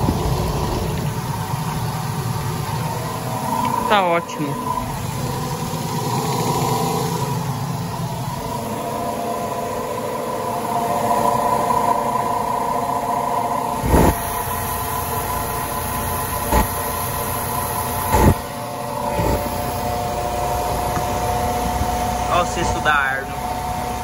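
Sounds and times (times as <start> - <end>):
spin dryer motor whine: 0.0 - 24.0.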